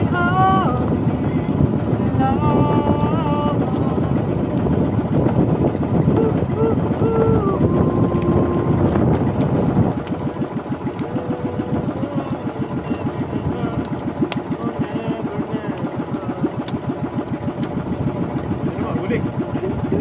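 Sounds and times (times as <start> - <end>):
boat engine running: 0.0 - 20.0.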